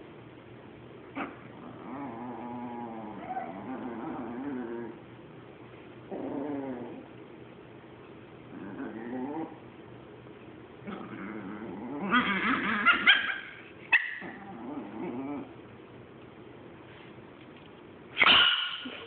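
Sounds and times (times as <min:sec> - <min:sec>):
small dog growling: 0:01.2 - 0:05.0, 0:06.1 - 0:07.1, 0:08.5 - 0:09.7, 0:10.8 - 0:13.3, 0:14.1 - 0:15.6
small dog yapping: 0:12.0 - 0:14.4, 0:18.2 - 0:19.0.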